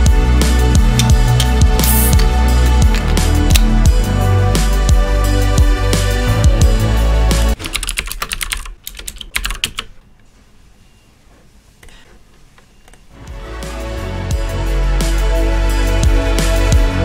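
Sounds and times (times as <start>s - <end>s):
background music: 0.0s - 7.7s, 13.1s - 17.0s.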